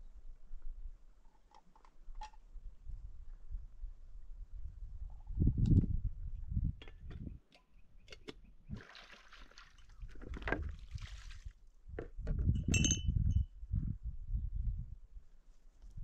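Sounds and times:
wind on microphone: 2.5 - 7.4, 10.0 - 16.0.

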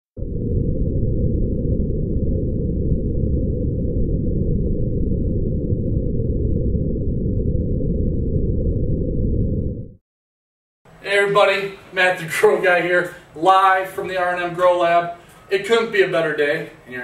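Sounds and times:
deep rumbling: 0.2 - 10.0.

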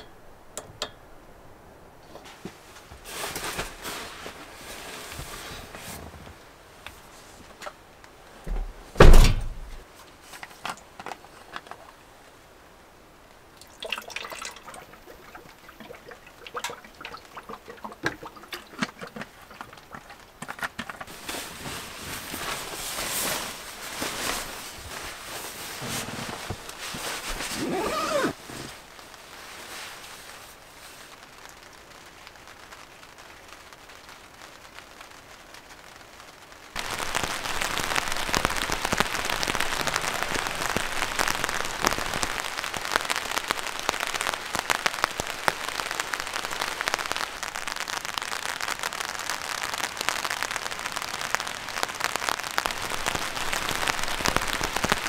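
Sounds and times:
sleeping bag rustling: 2.0 - 7.6, 20.0 - 31.3
heavy thump: 8.5 - 9.8
water poured from bottle: 13.6 - 21.2.

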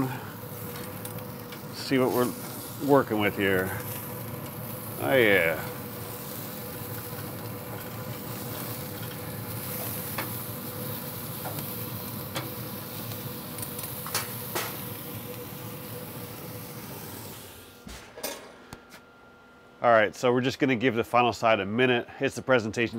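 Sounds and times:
burgers sizzling on grill: 0.0 - 17.8.

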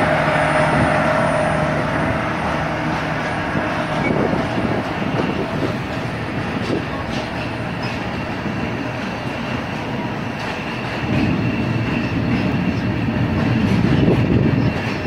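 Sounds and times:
locomotive engine drone: 0.0 - 15.0
train wheels rumbling and clattering: 0.0 - 15.0.

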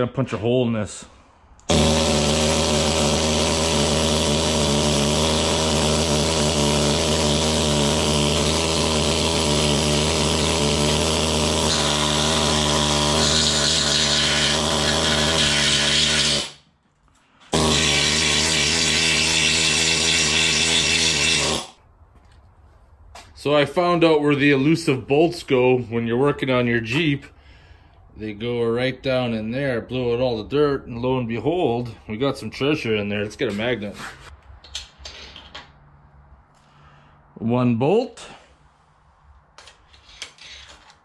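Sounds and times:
needle scaler buzzing on metal: 1.7 - 16.6, 17.5 - 21.8.

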